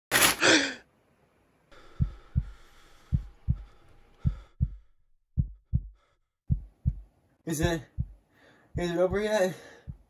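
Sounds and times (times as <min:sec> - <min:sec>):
paper bag whipped off: 0:00.1 - 0:00.5
heartbeat thumps: 0:01.8 - 0:10.0.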